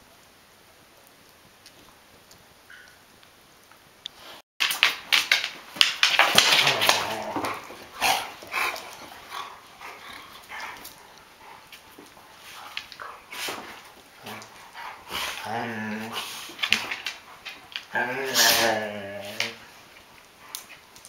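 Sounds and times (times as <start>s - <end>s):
paws scuffling on floor: 4.6s - 18.4s
jaws snapping: 4.6s - 19.6s
dogs growling: 6.2s - 20.8s.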